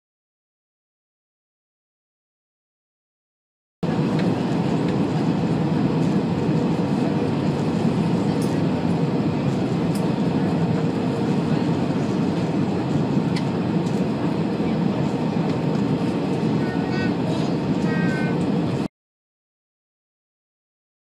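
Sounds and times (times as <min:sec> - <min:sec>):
airplane cabin rumble: 0:03.8 - 0:18.9.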